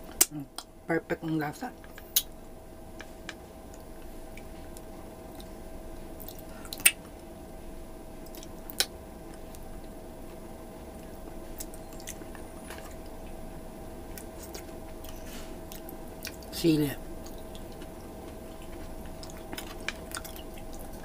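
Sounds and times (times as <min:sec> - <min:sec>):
wet squishing and chewing: 0:03.7 - 0:05.6, 0:06.2 - 0:07.2, 0:08.2 - 0:10.0, 0:11.0 - 0:13.4, 0:14.1 - 0:16.5, 0:17.1 - 0:21.0.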